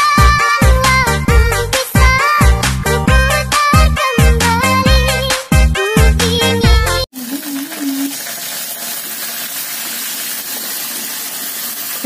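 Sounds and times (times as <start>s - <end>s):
dance music: 0.0s - 7.0s
gas stove hissing: 7.2s - 12.0s.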